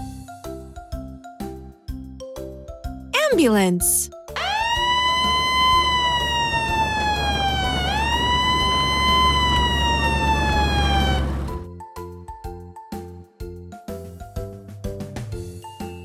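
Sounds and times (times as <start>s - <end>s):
ambulance siren wailing: 4.4s - 11.6s.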